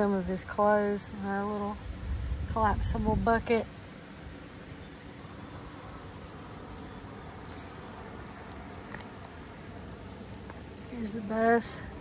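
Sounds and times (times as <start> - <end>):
insects chirping: 0.0 - 12.0
low rumble: 1.8 - 3.4.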